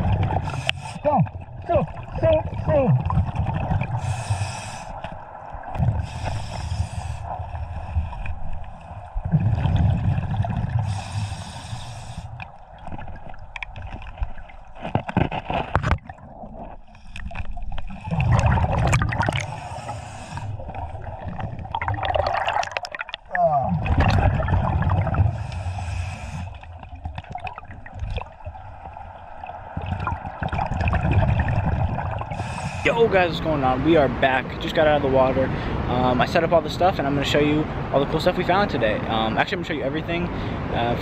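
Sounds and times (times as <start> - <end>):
exhaust bubbles rumbling: 0.0 - 4.2, 7.2 - 11.4, 17.8 - 25.6, 26.6 - 34.8
regulator hissing inhale: 0.4 - 1.0, 4.0 - 5.1, 6.0 - 8.2, 10.8 - 12.5, 19.4 - 20.8, 25.3 - 26.7, 32.3 - 32.9.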